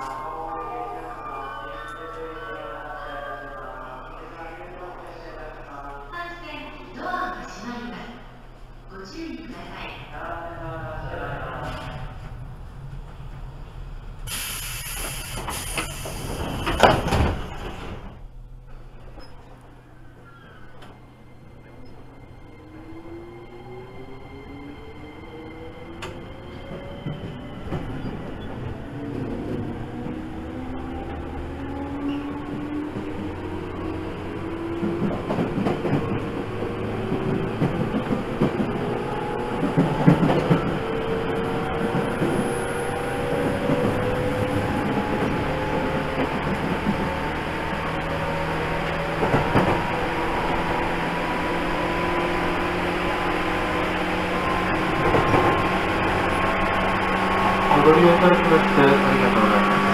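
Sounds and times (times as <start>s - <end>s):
compressed air hiss: 14.3s - 16.2s
train doors shutting with a thump: 14.3s - 19.6s, 34.8s - 41.2s
train wheels clattering on rails: 14.3s - 19.7s, 34.5s - 51.2s, 52.4s - 58.8s.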